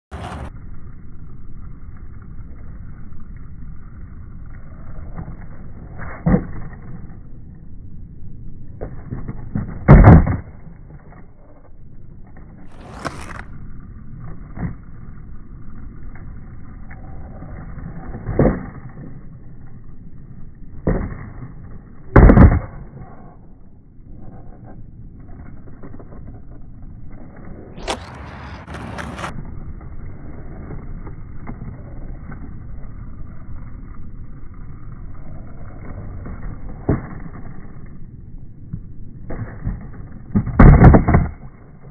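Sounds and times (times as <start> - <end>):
skateboard wheels rolling: 0.1 - 41.9
skateboard impacts on concrete: 5.0 - 7.2, 8.7 - 11.6, 12.2 - 13.5, 20.6 - 23.5, 27.8 - 29.9, 38.7 - 41.9.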